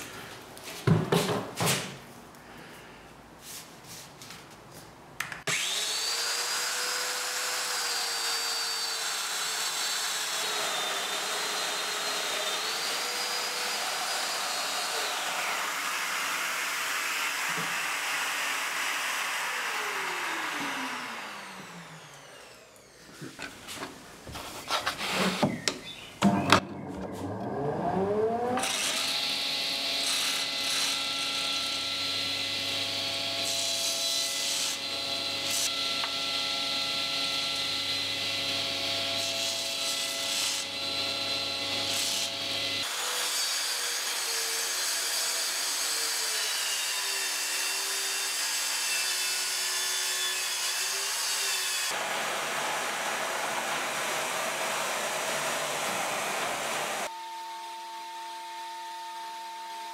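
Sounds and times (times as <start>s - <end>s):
track saw cutting: 5.5s - 23.3s, 27.0s - 57.1s
power saw cutting wood: 5.5s - 23.5s, 27.2s - 57.2s
saw with wavering tone: 53.7s - 59.9s.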